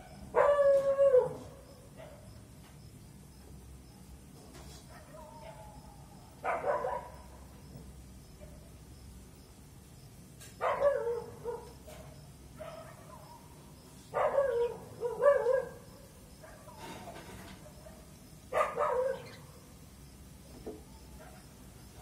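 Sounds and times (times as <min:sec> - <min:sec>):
dog barking: 0:00.0 - 0:02.3, 0:04.9 - 0:05.8, 0:06.4 - 0:07.3, 0:10.6 - 0:13.5, 0:14.1 - 0:15.8, 0:16.4 - 0:16.8, 0:17.6 - 0:19.4, 0:21.2 - 0:21.5.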